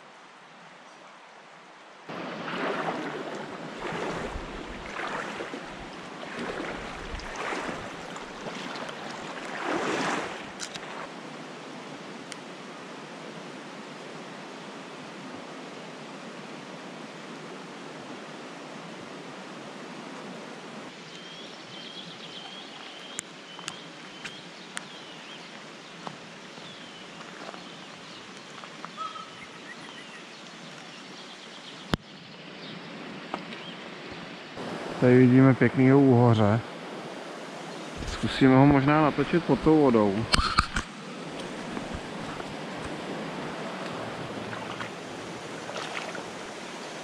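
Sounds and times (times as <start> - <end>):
flowing river water: 0.0 - 47.0
bird chirping: 21.0 - 25.4, 26.6 - 32.9.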